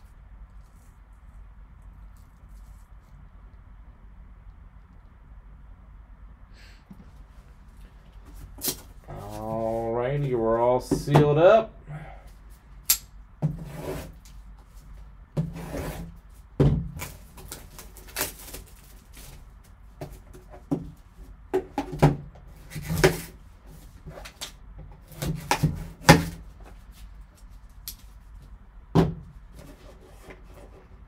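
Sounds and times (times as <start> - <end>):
shrink wrap crinkling: 0.0 - 3.6, 17.0 - 19.8.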